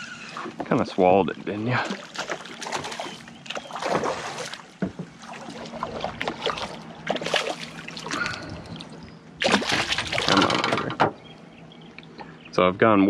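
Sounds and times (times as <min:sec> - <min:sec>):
fish thrashing and splashing in water: 0:01.7 - 0:10.9.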